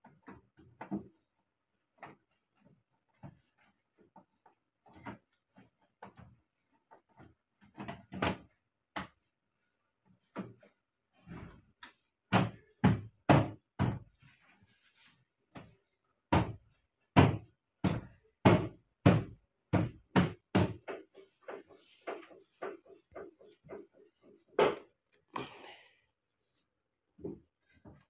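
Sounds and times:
hands knocking plastic door panel: 17.2s - 21.1s.

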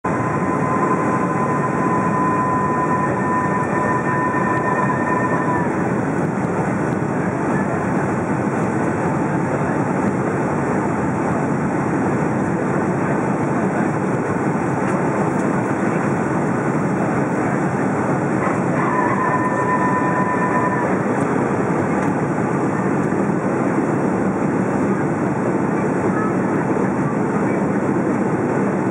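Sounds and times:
thin steady whine: 0.0s - 7.8s, 17.3s - 22.9s
jet cabin engine and airflow noise: 0.0s - 28.9s.

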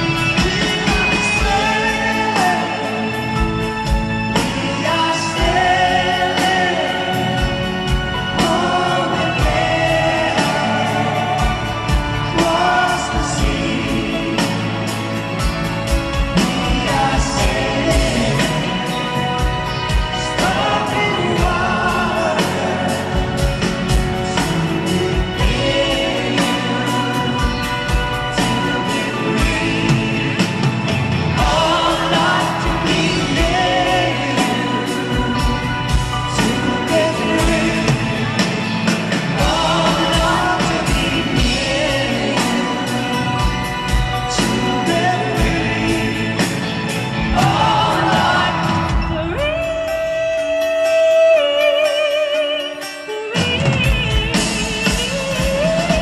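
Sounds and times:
steady drum beat: 0.0s - 52.0s, 52.8s - 56.0s
man singing lead: 0.0s - 56.0s
rock band playing ballad: 0.0s - 56.0s
women backing singers: 16.2s - 49.7s
female backing singers: 47.2s - 49.5s.

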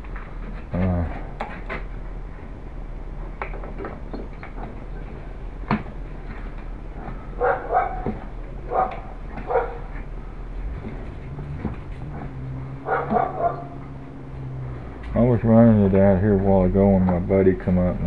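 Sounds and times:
short low vocal sound: 0.7s - 1.4s
handling clicks and knocks: 3.2s - 14.1s.

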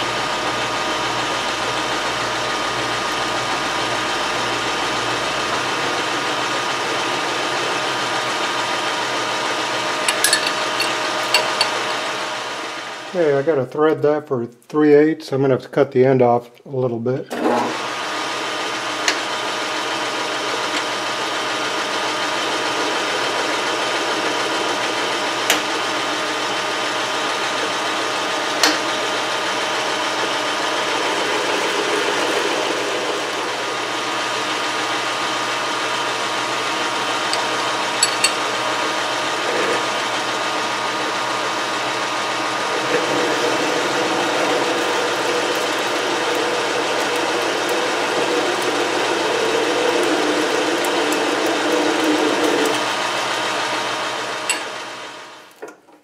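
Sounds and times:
metal lathe humming: 0.0s - 13.5s, 17.4s - 55.6s
drill boring into workpiece: 0.2s - 12.5s, 27.0s - 55.4s.

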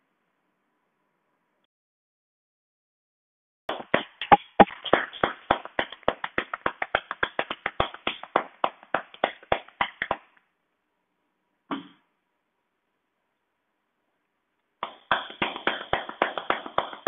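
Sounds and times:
hands clapping on a back: 3.7s - 10.4s, 14.8s - 17.0s.

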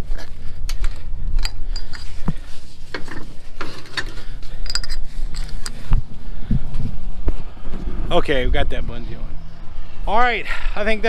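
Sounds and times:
metal clicks and rattles: 2.9s - 5.8s.

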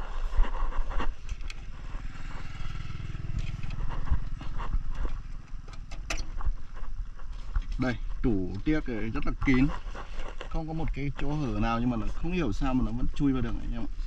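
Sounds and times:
motorcycle engine passing by: 1.2s - 6.5s.

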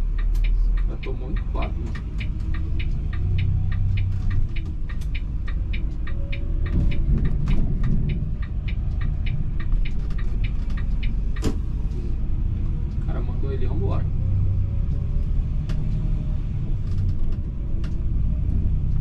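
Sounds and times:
fast even ticking: 0.0s - 11.6s
bus engine running low: 0.0s - 19.0s.

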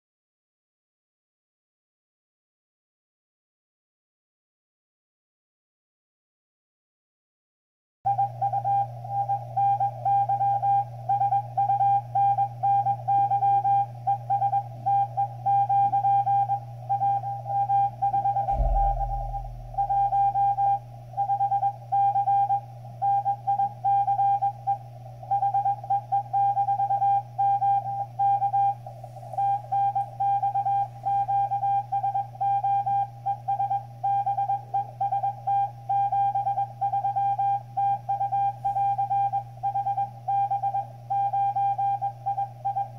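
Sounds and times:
morse code tone: 8.1s - 24.5s, 29.4s - 42.9s
steady low hum: 8.1s - 35.3s
low thump: 18.5s - 21.1s.

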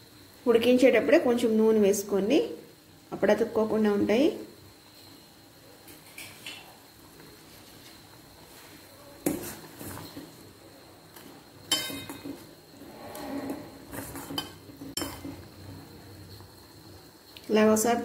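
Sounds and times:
boiling water: 0.0s - 18.0s
spoon clinking on metal pot: 11.7s - 12.3s.

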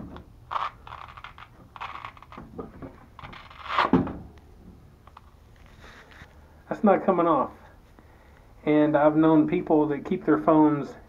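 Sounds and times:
scratchy velcro rustles and scrapes: 0.5s - 2.4s, 3.2s - 3.9s, 5.6s - 6.3s.

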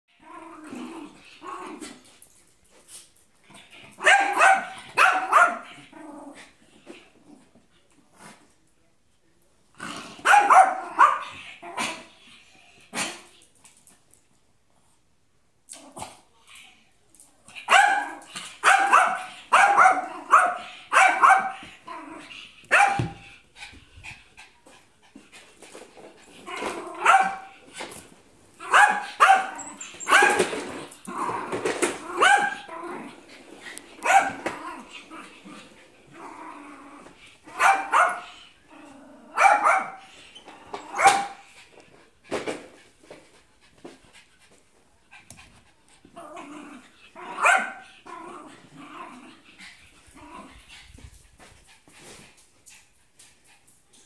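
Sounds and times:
small dog barking: 4.0s - 5.6s, 10.2s - 11.2s, 17.7s - 21.6s, 22.7s - 23.2s, 27.0s - 27.5s, 28.6s - 30.4s, 32.2s - 32.7s, 34.0s - 34.4s, 37.5s - 38.3s, 39.4s - 40.0s, 40.9s - 41.4s, 47.3s - 47.8s.

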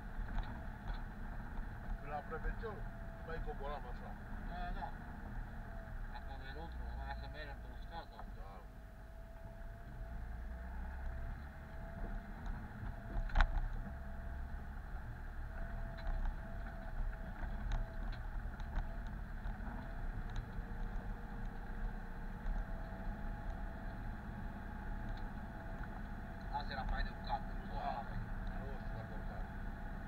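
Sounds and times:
off-road vehicle engine rumble: 0.0s - 30.0s.

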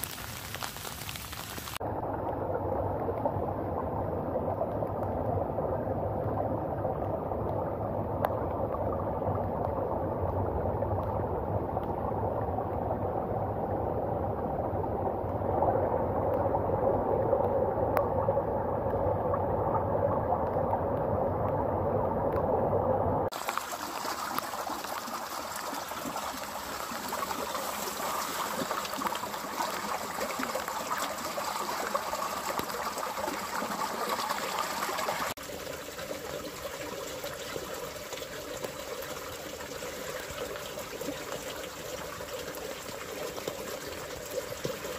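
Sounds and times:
water running between rocks: 0.0s - 1.8s, 23.3s - 44.9s
water rushing: 0.0s - 44.9s.

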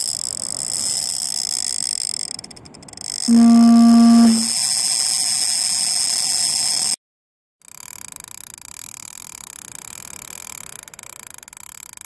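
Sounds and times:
fishing reel clicker whine: 0.0s - 5.3s
loud low steady tone: 3.3s - 4.6s.

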